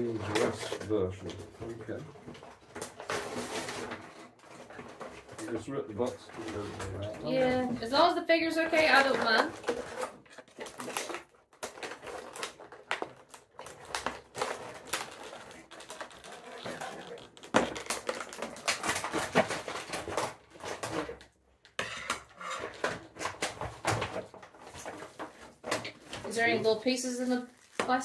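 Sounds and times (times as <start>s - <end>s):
plastic packaging crackling: 0.0s - 21.3s, 22.6s - 28.0s
cardboard box ripping: 9.5s - 20.9s.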